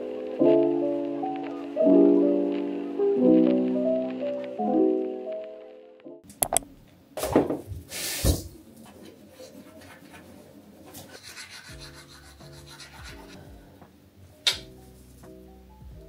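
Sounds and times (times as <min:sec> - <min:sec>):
faint background music: 0:00.0 - 0:07.2, 0:08.4 - 0:16.0
quick clicks: 0:06.3 - 0:06.7
rasping rubbing strokes: 0:11.1 - 0:13.4.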